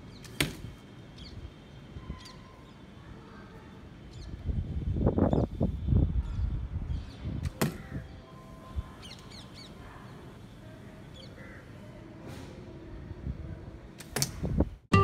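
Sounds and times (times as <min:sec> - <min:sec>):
birds chirping: 0:01.1 - 0:04.4
wind buffeting microphone: 0:04.1 - 0:08.2, 0:12.9 - 0:14.9
sharp snap: 0:14.0 - 0:14.5.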